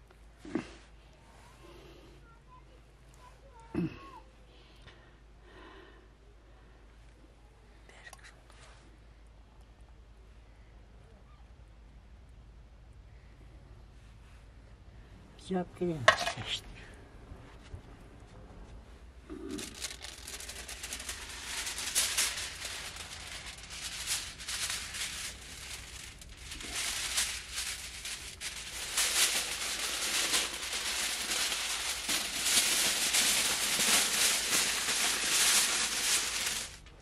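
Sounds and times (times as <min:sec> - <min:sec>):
aluminium foil crinkling: 0:19.3 - 0:37.0.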